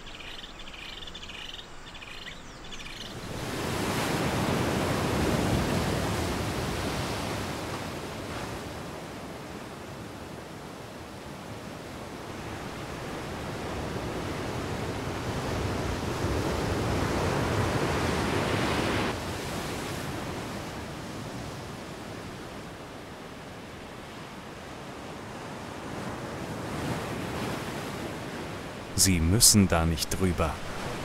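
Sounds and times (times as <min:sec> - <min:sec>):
ocean surf breaking: 0:03.2 - 0:08.8, 0:12.2 - 0:20.4, 0:25.8 - 0:31.0.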